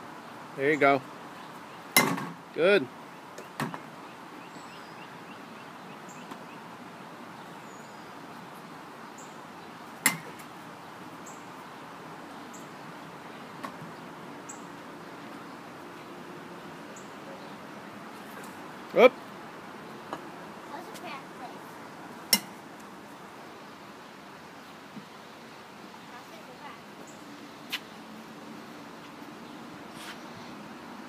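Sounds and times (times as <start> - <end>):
outdoor background hiss: 0.0 - 31.0.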